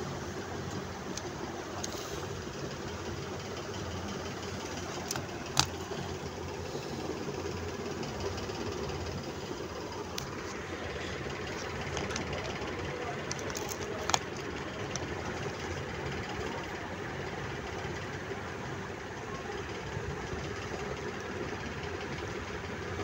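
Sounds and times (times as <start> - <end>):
low background rumble: 0.0 - 23.0
clicks: 4.2 - 6.1, 11.4 - 15.8.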